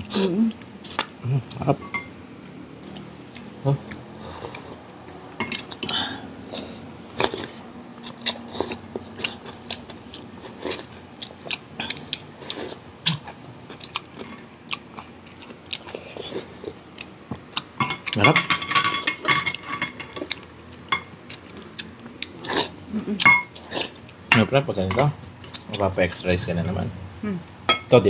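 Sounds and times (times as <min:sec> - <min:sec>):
person chewing food: 0:00.0 - 0:18.3, 0:19.5 - 0:24.3, 0:25.4 - 0:25.9
cutlery and dishes clinking: 0:05.4 - 0:06.0, 0:17.8 - 0:20.3.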